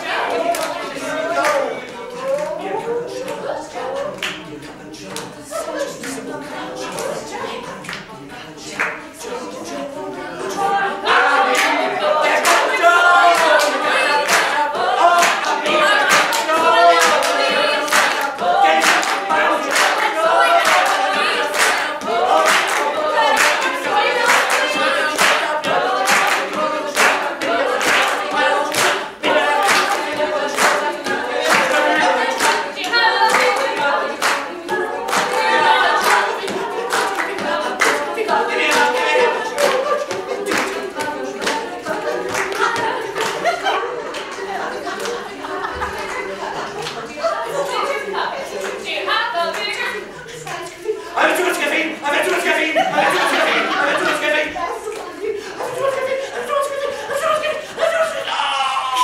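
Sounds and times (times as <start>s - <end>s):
group singing a cappella: 0.0s - 59.0s
hand claps: 13.3s - 14.6s, 15.2s - 29.0s, 29.6s - 41.6s.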